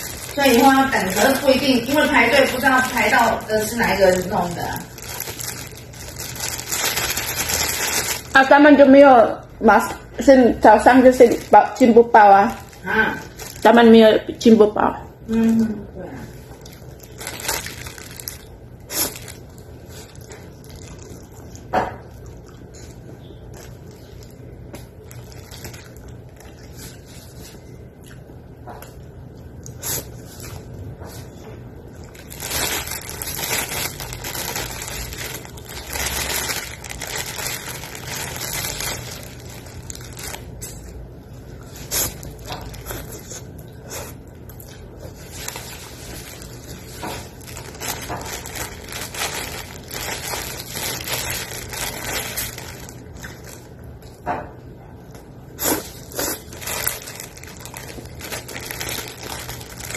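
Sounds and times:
plastic bag crinkling: 0:00.0 - 0:09.0, 0:10.6 - 0:14.6, 0:16.4 - 0:27.7, 0:31.9 - 0:54.2, 0:55.7 - 0:59.9
low steady hum: 0:00.0 - 0:59.9
close chewing: 0:16.4 - 0:30.7.

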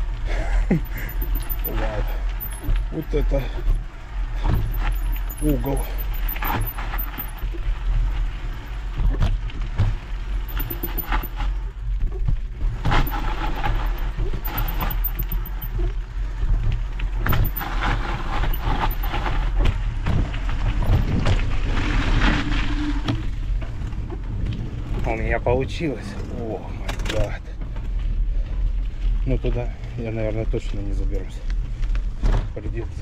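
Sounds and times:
bike tyres on dirt: 0:00.0 - 0:32.3
wind rumble on microphone: 0:00.0 - 0:33.0
bike rattling and knocking: 0:00.5 - 0:03.8, 0:04.4 - 0:21.9.

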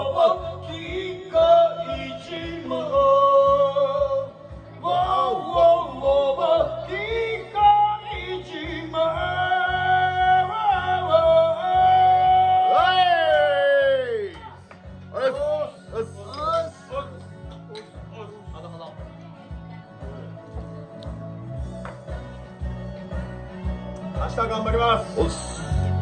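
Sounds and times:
man singing into a microphone: 0:00.0 - 0:14.1
backing track music: 0:00.0 - 0:26.0.

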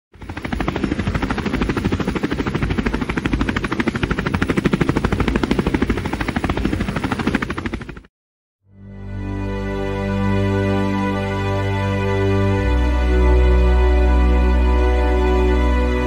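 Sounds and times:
helicopter rotor blades chopping: 0:00.2 - 0:08.1.

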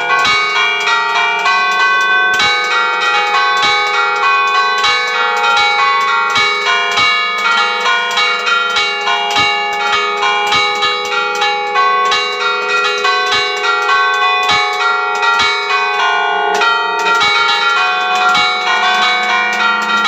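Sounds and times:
church bells ringing: 0:00.0 - 0:20.0.

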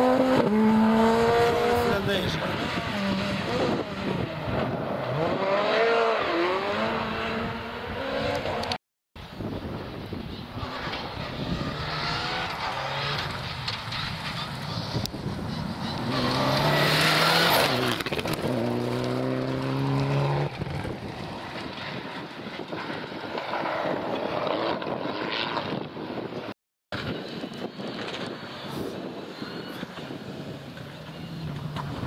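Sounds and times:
rally car engines revving: 0:00.0 - 0:08.8, 0:10.5 - 0:25.9.

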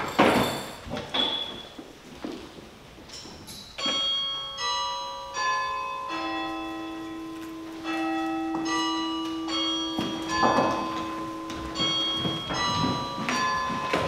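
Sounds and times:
bell chimes ringing: 0:03.8 - 0:14.0.

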